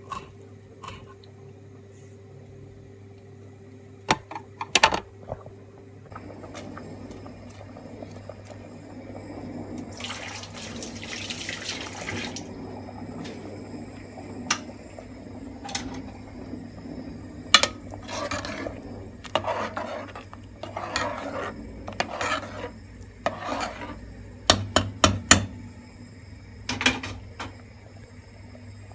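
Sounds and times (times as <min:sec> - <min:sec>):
low steady hum: 0:00.0 - 0:28.9
soup sloshing in pot: 0:06.1 - 0:24.0.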